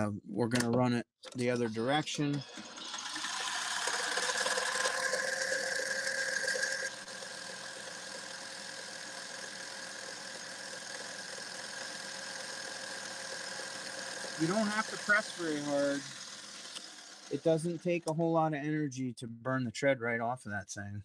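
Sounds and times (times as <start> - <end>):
metal lathe whining: 1.4 - 18.0.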